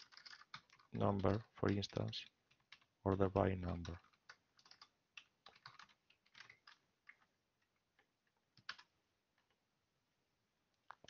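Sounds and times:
typing on computer keyboard: 0.0 - 7.3, 8.0 - 8.9.

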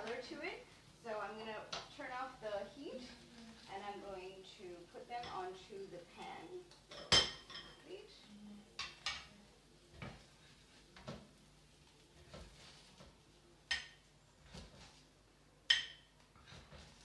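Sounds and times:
metal spatula clinking on pan: 15.7 - 16.1.

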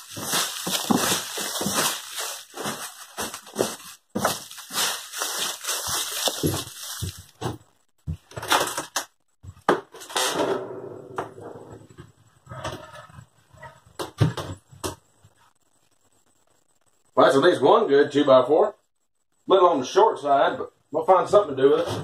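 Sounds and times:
broom sweeping leaves: 0.0 - 7.4.

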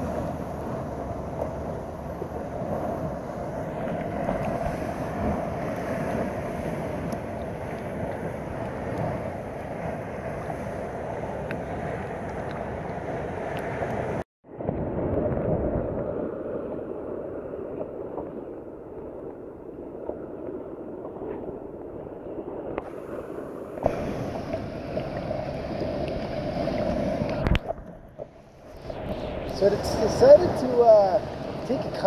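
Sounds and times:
sea water sloshing: 0.0 - 32.0
wind on microphone: 0.0 - 32.0.

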